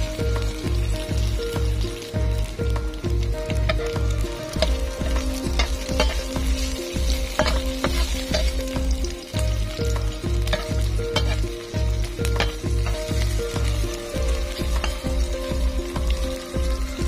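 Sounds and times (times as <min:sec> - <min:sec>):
background music with low beat: 0:00.0 - 0:17.0
food sizzling in hot oil: 0:00.0 - 0:17.0
spatula scraping a pan: 0:03.6 - 0:08.8, 0:10.4 - 0:13.5.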